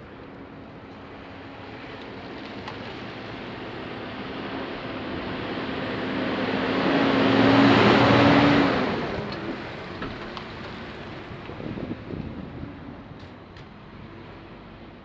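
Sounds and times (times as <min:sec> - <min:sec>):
truck passing by: 0:00.0 - 0:15.0.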